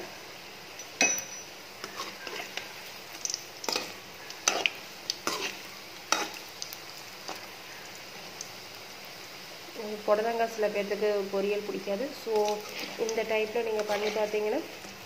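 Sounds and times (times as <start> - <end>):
oil sizzling: 0.0 - 15.0
metal spoon scraping a pan: 0.8 - 6.4, 12.2 - 14.6.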